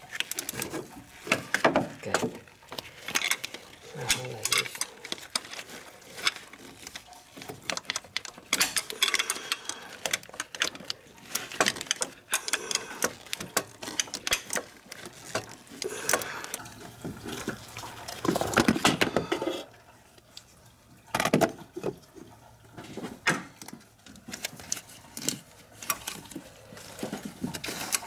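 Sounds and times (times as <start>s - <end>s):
metal tools clinking: 3.2s - 6.5s, 7.9s - 10.8s.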